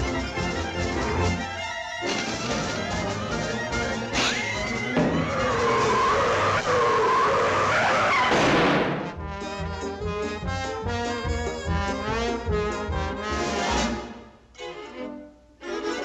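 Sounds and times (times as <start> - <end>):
orchestral cartoon music with brass: 0.0 - 14.4
roller skates skidding: 4.1 - 9.0.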